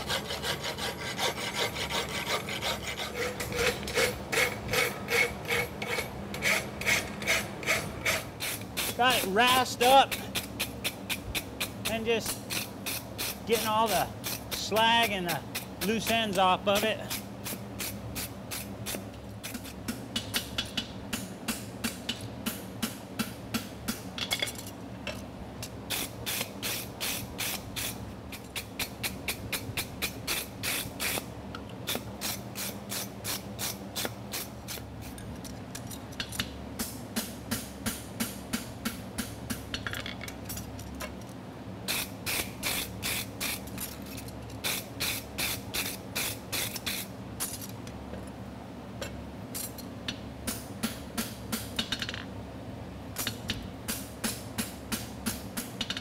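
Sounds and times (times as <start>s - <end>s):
tool scrubbing steel: 0.0s - 10.7s, 11.9s - 17.2s
cooling fan buzz: 0.0s - 56.0s.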